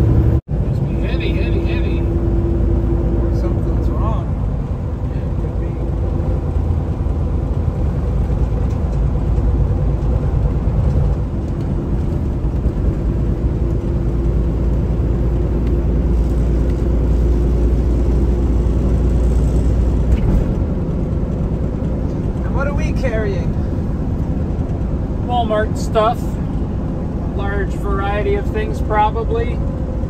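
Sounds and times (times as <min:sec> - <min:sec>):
truck engine and road drone: 0:00.0 - 0:30.0.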